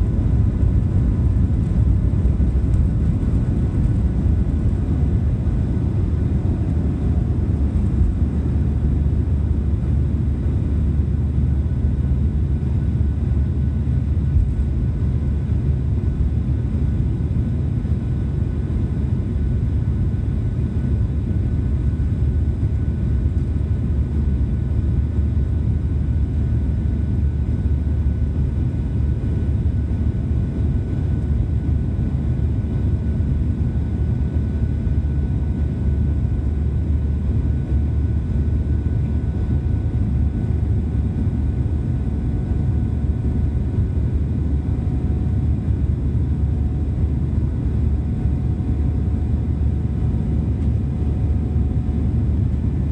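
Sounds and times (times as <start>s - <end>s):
jet engines rumbling: 0.0s - 9.8s.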